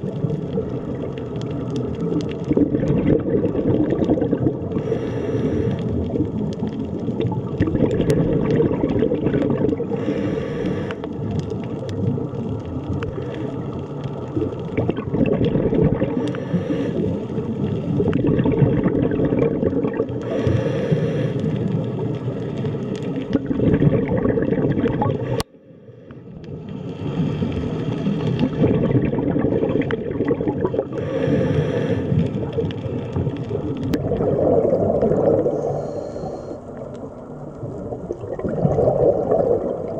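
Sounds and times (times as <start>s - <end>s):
exhaled bubbles: 0.0s - 39.9s
low underwater noise: 0.0s - 39.9s
diver breathing through regulator: 4.7s - 6.1s, 9.8s - 11.2s, 16.0s - 17.8s, 20.2s - 21.8s, 30.8s - 33.2s, 35.4s - 36.9s.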